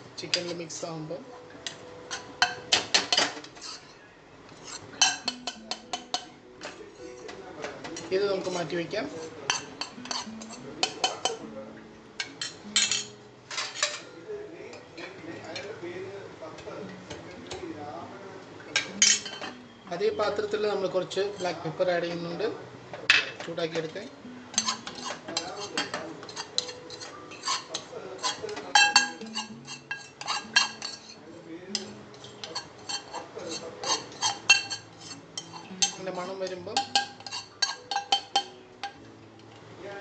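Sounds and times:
metal spoon scraping a pan: 0:02.1 - 0:07.3, 0:08.0 - 0:11.4, 0:24.5 - 0:39.0.

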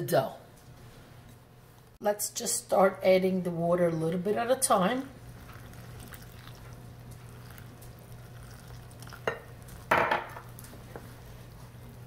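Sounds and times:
spoon stirring in glass bowl: 0:05.4 - 0:11.1
glass cup knocking on stone: 0:09.2 - 0:10.5.

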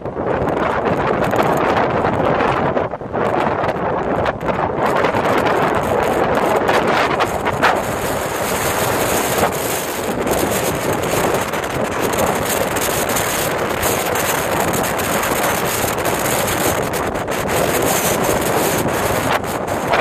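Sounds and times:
wind buffeting microphone: 0:00.0 - 0:20.0
surf breaking on rocks: 0:04.9 - 0:20.0.

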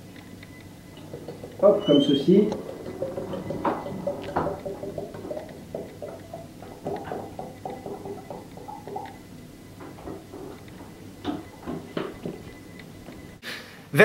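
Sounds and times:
oil gurgling from a bottle: 0:01.0 - 0:11.8.

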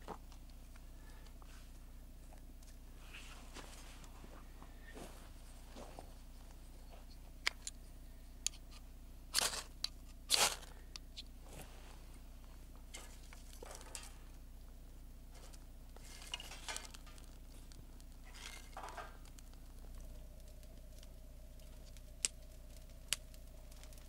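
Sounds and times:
tinder rustling: 0:11.4 - 0:14.6, 0:15.2 - 0:24.0
fire starter scraping strikes: 0:12.9 - 0:14.4, 0:15.3 - 0:19.4.

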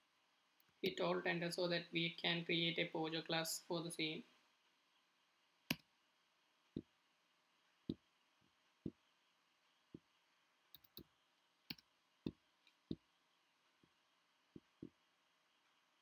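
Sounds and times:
computer keyboard and mouse clicks: 0:10.7 - 0:11.1.

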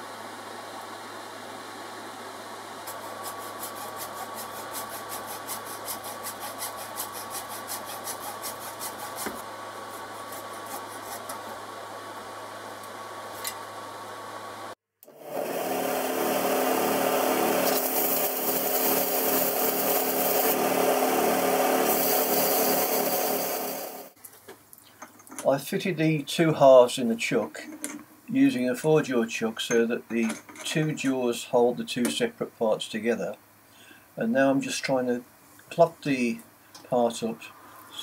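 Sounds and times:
hacksaw cutting plastic: 0:02.9 - 0:11.4, 0:17.2 - 0:23.4
plastic rubbing on sanding surface: 0:02.9 - 0:11.4.

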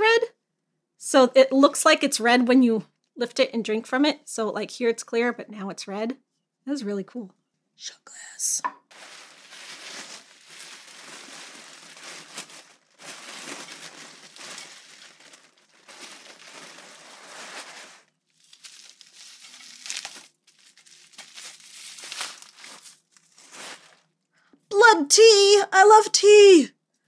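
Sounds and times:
tissue paper crinkling: 0:08.9 - 0:24.1.

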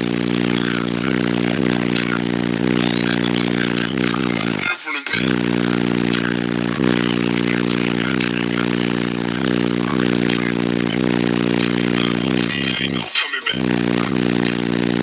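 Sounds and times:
loud bass-heavy music from subwoofers: 0:00.0 - 0:15.0.

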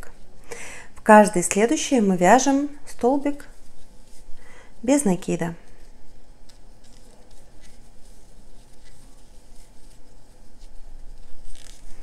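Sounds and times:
cord rustling through stitches: 0:01.0 - 0:12.0.

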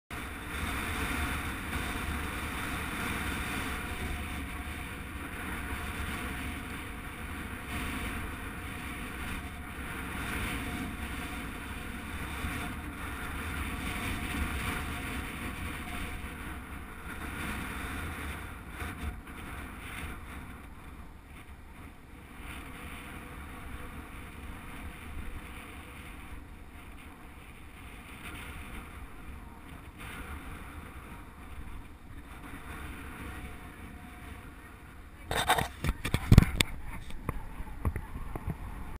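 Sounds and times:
wind buffeting microphone: 0:00.1 - 0:38.9.

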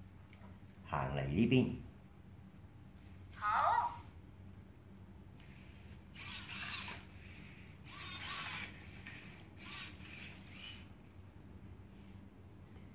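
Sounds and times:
robot servo motors whirring: 0:05.4 - 0:11.0.

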